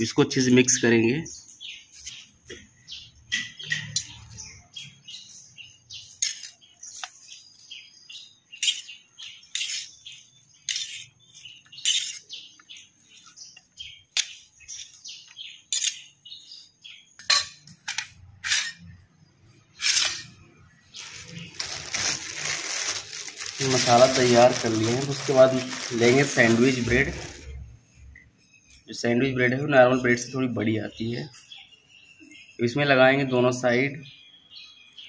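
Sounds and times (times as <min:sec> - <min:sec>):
spoon scraping in a bowl: 0:06.0 - 0:06.6, 0:08.6 - 0:08.9, 0:09.5 - 0:10.0, 0:10.7 - 0:11.1, 0:11.8 - 0:12.3, 0:18.4 - 0:19.0, 0:19.8 - 0:20.4.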